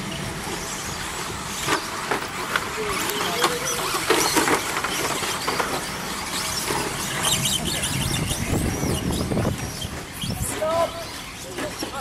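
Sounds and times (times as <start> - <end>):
toy truck motors whining: 0.0 - 12.0
tyres on track: 0.0 - 12.0.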